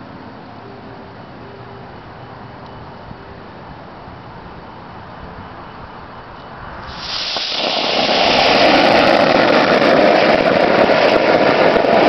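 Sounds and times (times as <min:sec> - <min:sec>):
firework fountain hissing: 0:05.6 - 0:12.0.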